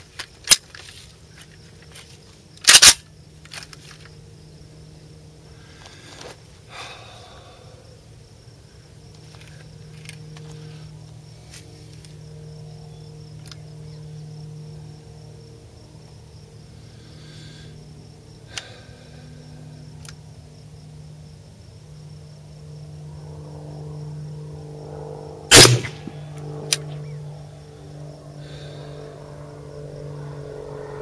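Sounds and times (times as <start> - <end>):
steady low drone: 22.3 - 31.0
rifle shot with echo: 25.5 - 26.5
faint sharp cracks: 25.5 - 27.0.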